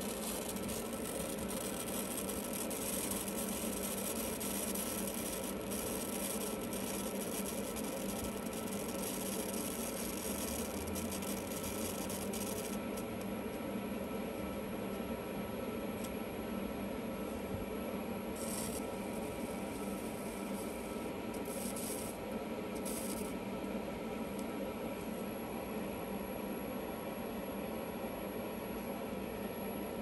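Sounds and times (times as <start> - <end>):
steady hum: 0.0 - 30.0
plasma flame hissing: 18.4 - 23.3.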